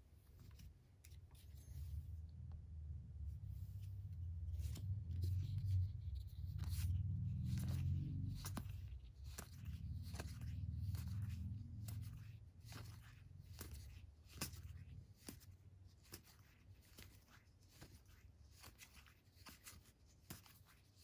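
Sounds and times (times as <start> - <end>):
low rumble: 1.4 - 12.4.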